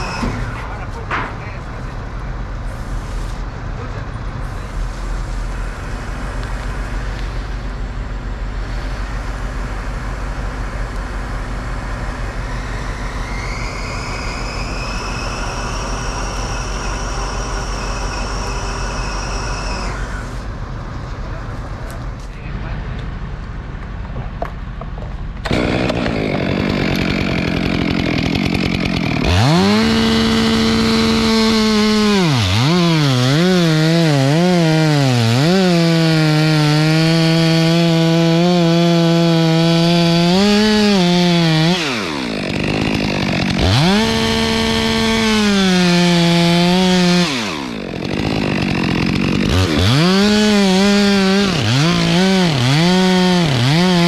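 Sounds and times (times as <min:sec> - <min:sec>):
chainsaw cutting wood: 0:00.0 - 0:00.6, 0:11.9 - 0:20.5, 0:25.4 - 0:54.0.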